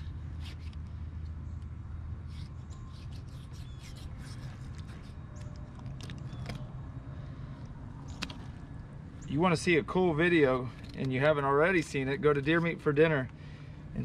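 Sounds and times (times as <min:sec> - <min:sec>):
knife slicing and scraping hide: 0:00.0 - 0:00.7, 0:02.3 - 0:05.2
steady low rumble: 0:00.0 - 0:14.0.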